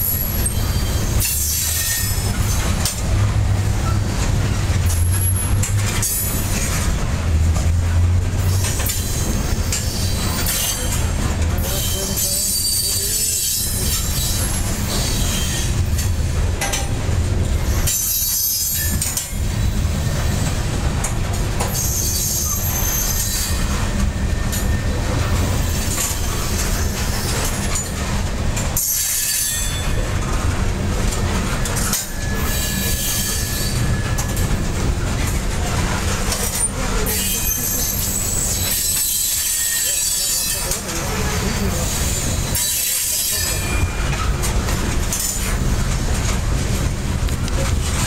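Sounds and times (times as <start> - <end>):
high wheel squeal: 0.0 - 2.7, 8.4 - 16.1, 17.6 - 20.5, 21.6 - 28.0, 28.8 - 30.1, 31.8 - 34.5, 36.3 - 44.4
train wheels rumbling on rails: 0.0 - 48.0.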